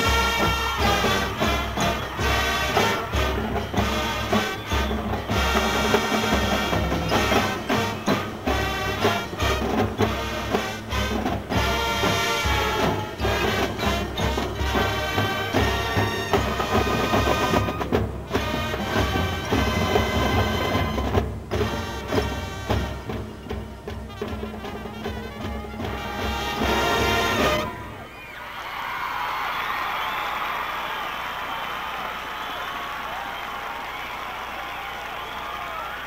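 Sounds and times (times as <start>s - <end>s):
drumline snare and bass drums: 0.0s - 28.0s
marching band brass: 0.0s - 28.2s.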